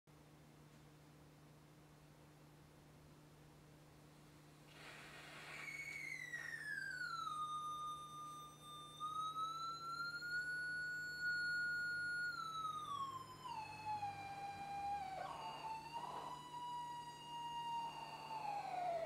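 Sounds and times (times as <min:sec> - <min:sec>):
buzzy electronic tone sliding: 0:04.7 - 0:19.0.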